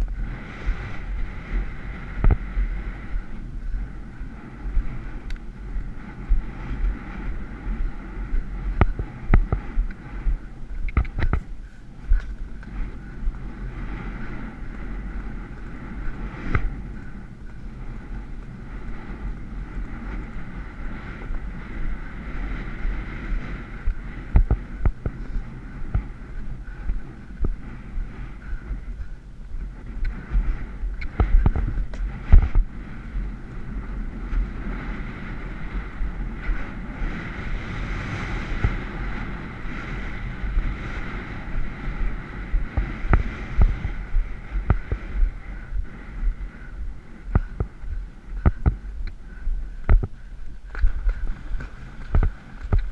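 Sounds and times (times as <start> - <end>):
wind on microphone: 0.0 - 52.9
galloping hoofbeats: 3.2 - 52.9.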